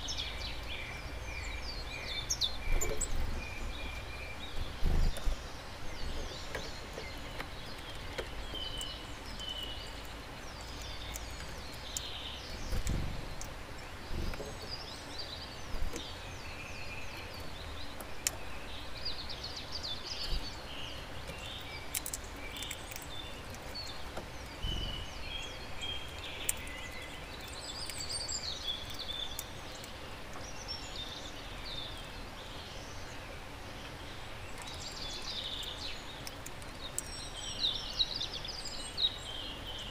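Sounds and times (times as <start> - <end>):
songbirds chirping: 0.0 - 39.9
dull low thumps: 12.7 - 14.7
sharp clicks: 21.3 - 24.8.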